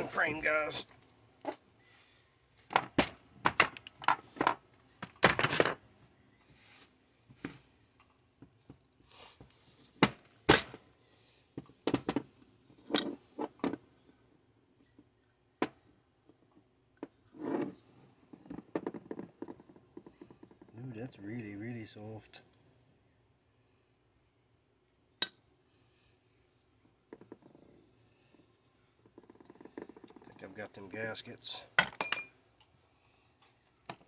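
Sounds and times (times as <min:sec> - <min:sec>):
metal tools clinking on workbench: 0:12.8 - 0:13.5, 0:31.8 - 0:32.7.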